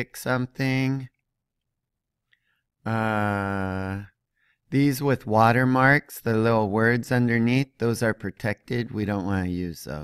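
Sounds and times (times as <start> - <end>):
man's drawn-out hesitation sound: 2.8 - 10.0.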